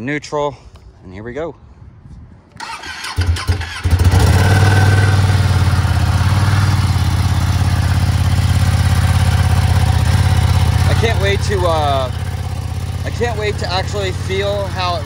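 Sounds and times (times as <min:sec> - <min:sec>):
motorcycle engine starting and idling: 0:02.6 - 0:15.0.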